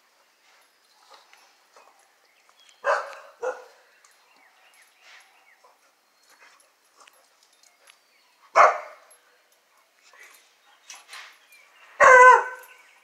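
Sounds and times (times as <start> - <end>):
dog barking: 2.8 - 3.8, 8.6 - 9.1, 12.0 - 12.6.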